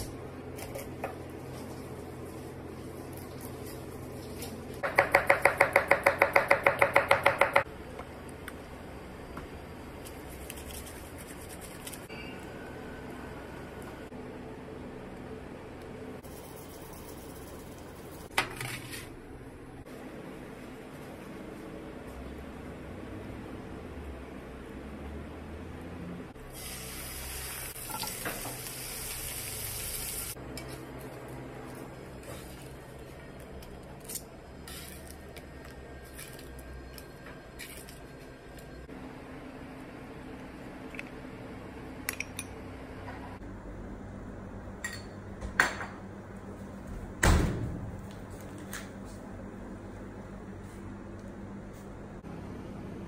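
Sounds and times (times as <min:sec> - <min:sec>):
fish sizzling in frying pan: 0:26.6 - 0:30.4.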